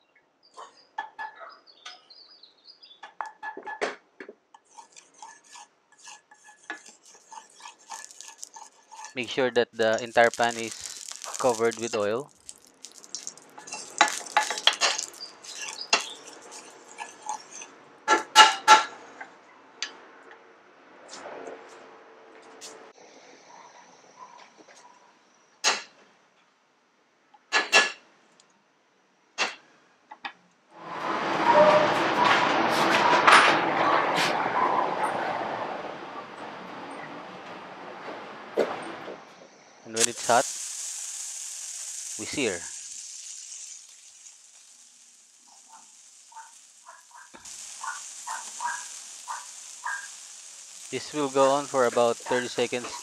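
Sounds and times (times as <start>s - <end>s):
skillet scraping on stove burner: 4.6s - 19.0s
steak sizzling in a pan: 4.7s - 17.8s, 40.0s - 53.0s
faint ticks: 41.4s - 53.0s.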